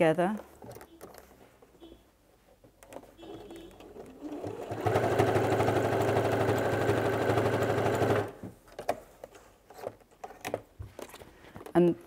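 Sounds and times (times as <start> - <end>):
sewing machine stitching: 3.2 - 8.4.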